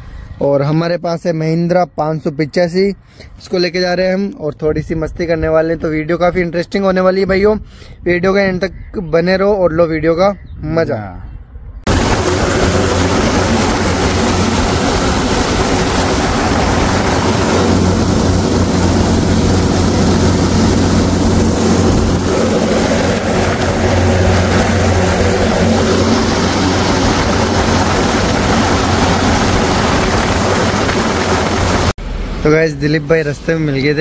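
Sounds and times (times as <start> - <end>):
even rushing noise: 11.8 - 34.0
tractor diesel engine droning: 11.9 - 32.4.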